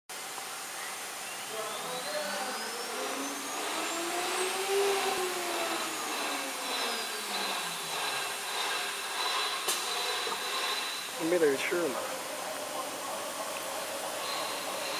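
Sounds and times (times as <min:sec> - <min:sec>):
wood router whirring: 0:01.8 - 0:12.1, 0:14.1 - 0:14.9.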